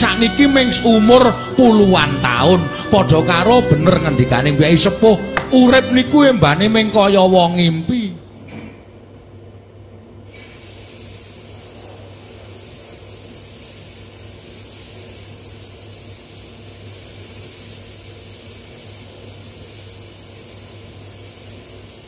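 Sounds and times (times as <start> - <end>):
water spraying from a hose: 10.4 - 22.0.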